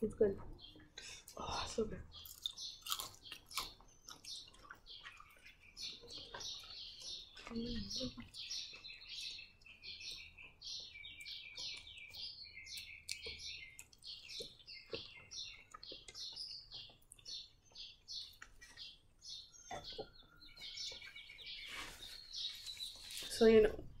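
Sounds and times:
small bird chirping: 0.0s - 24.0s.

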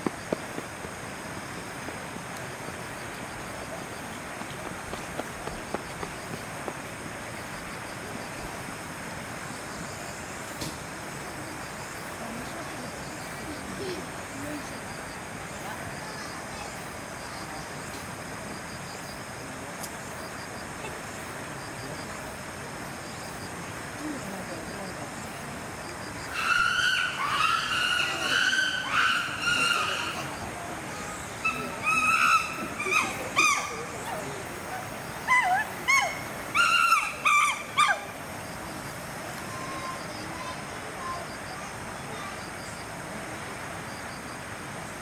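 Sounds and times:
steady hiss: 0.0s - 45.0s
high-pitched animal calls: 26.3s - 30.4s, 31.3s - 34.3s, 35.2s - 38.1s.

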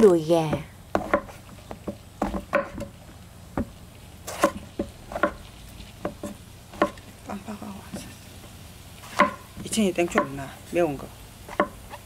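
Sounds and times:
knife knocking on wooden board: 0.5s - 2.9s, 9.2s - 9.4s.

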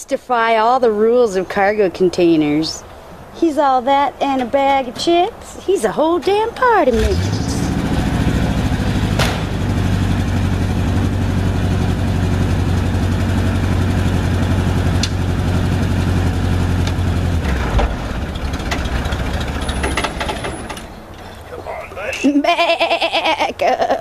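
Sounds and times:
truck engine idling: 6.3s - 22.3s.

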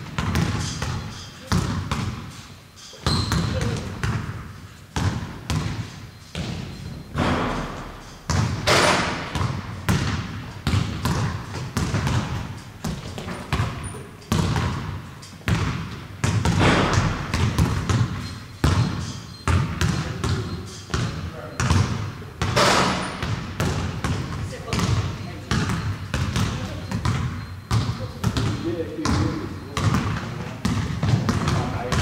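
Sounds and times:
thumps with ringing tail: 6.9s - 9.5s, 16.4s - 19.1s.

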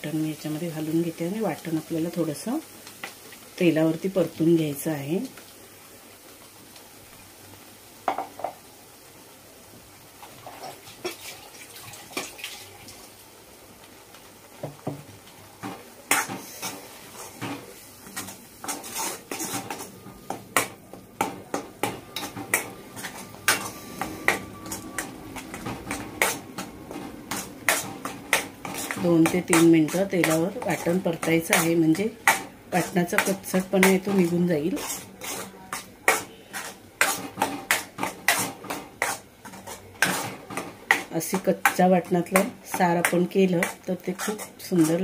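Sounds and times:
paste frying in oil: 0.0s - 45.0s
spoon knocking and scraping in pan: 8.0s - 8.6s, 14.6s - 45.0s.

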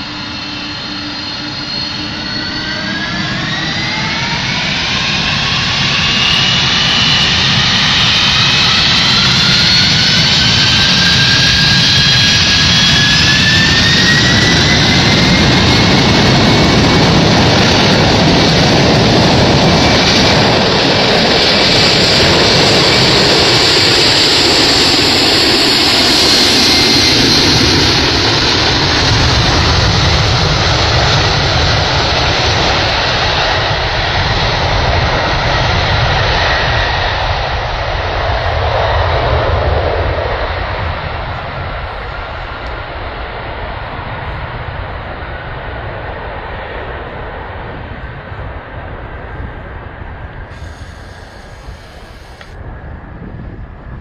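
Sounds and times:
jet engines spooling up: 0.0s - 44.2s, 50.2s - 54.0s.

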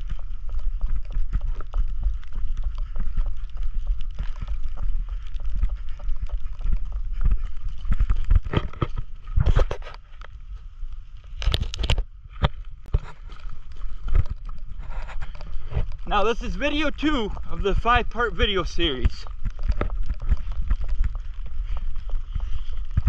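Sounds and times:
footsteps on wet pavement: 0.0s - 23.0s
wind rumbling on microphone: 0.0s - 23.0s
scuffing bursts: 12.9s - 23.0s.

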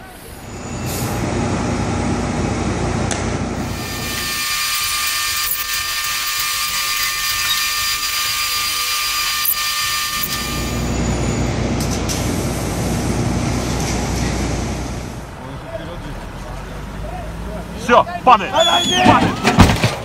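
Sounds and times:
heavy machinery rumble and whine: 0.0s - 15.4s.

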